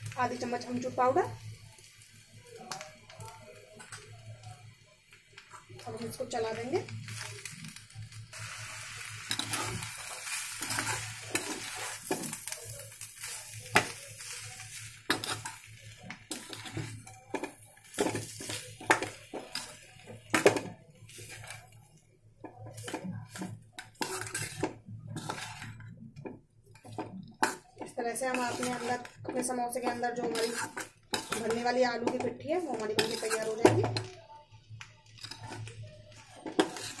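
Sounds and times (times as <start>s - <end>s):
hot oil sizzling: 0.0s - 37.0s
metal spoon scraping a pan: 8.6s - 34.1s, 35.0s - 37.0s.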